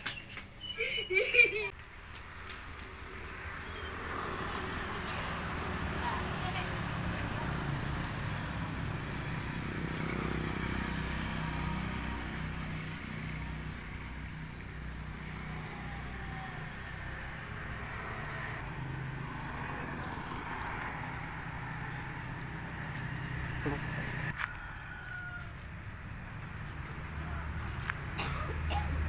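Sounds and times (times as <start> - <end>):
engine low drone: 5.0 - 24.4.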